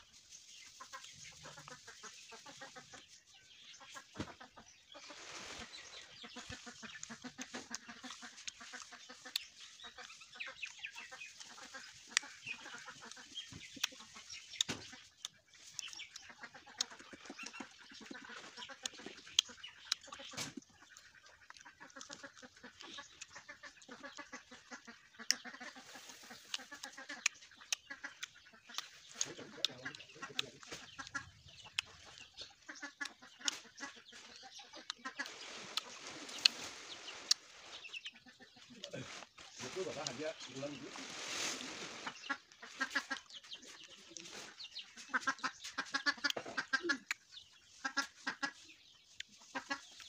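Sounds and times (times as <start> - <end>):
chickens clucking: 0.0 - 50.0
fruit being bitten and chewed: 6.4 - 10.2, 11.0 - 24.0, 24.8 - 37.7, 38.9 - 43.4, 45.3 - 47.3.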